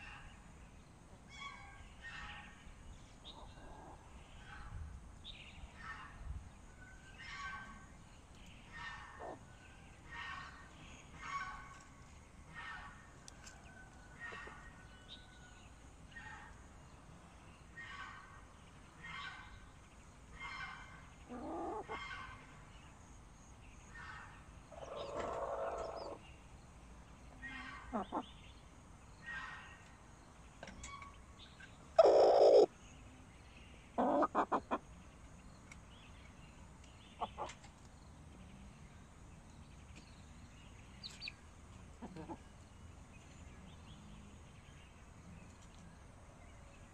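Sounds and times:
loud hen calls: 20.4s - 22.3s, 24.7s - 26.2s, 32.0s - 32.7s, 34.0s - 34.8s
hen clucking: 21.3s - 22.2s, 27.5s - 28.3s, 32.0s - 32.7s, 34.0s - 34.8s, 37.2s - 37.6s, 42.0s - 42.5s.

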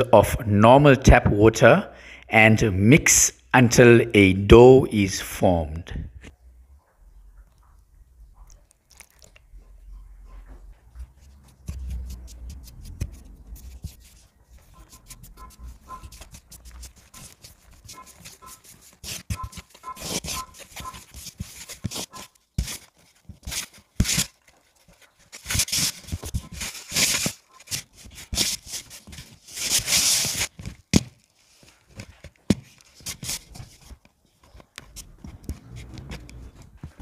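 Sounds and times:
dough squelching: 8.4s - 37.0s
dough scraping and rubbing in bowl: 10.9s - 30.5s.

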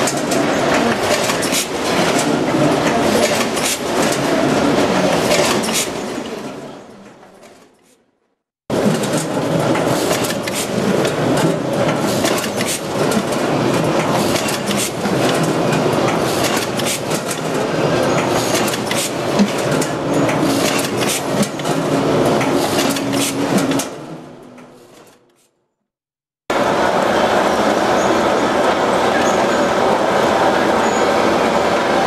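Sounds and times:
bagging machine clattering: 0.0s - 7.9s, 8.7s - 25.4s.

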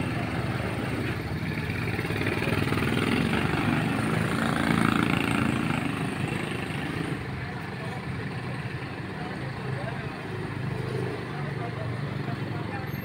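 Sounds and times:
small motorcycle engine running: 0.0s - 10.0s.

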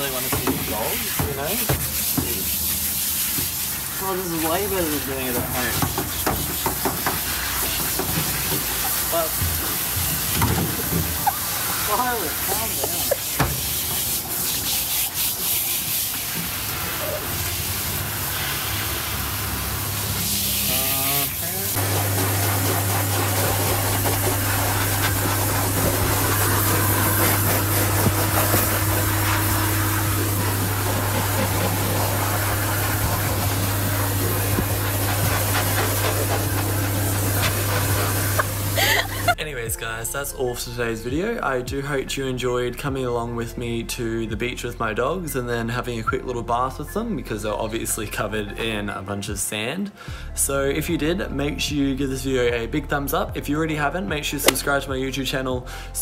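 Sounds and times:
hose spray hissing: 0.0s - 39.4s
motor hum: 21.8s - 39.4s.

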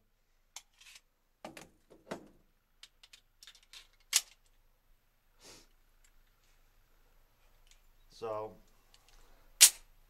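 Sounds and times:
pistol clicks and clacks: 9.6s - 9.9s.

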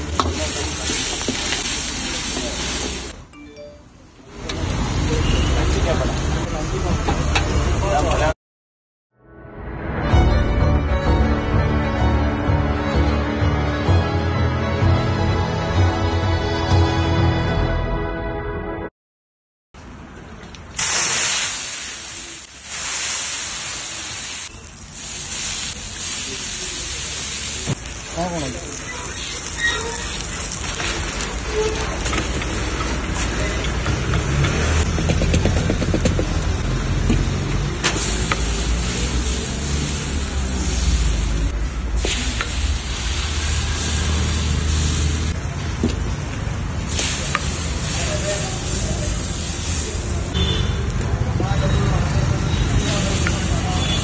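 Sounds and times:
water sizzling on hot griddle: 0.0s - 3.2s, 20.8s - 34.9s, 36.9s - 45.8s, 46.4s - 50.4s.

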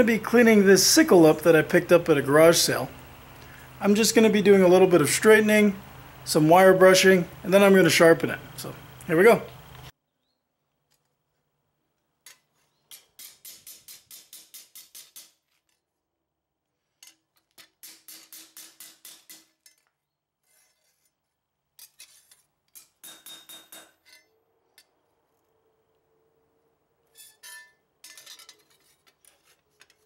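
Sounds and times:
hammer striking steel blade: 17.8s - 19.8s, 22.8s - 24.3s.

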